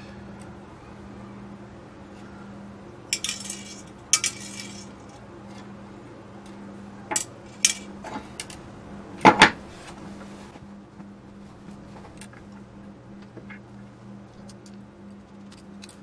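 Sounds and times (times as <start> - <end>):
metal tools clinking on wooden bench: 3.2 - 5.2.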